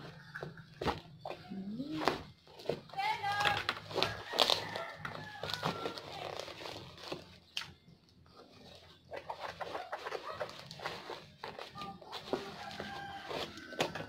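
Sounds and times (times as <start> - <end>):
plastic mailer crinkling: 2.0 - 7.6, 8.5 - 14.0.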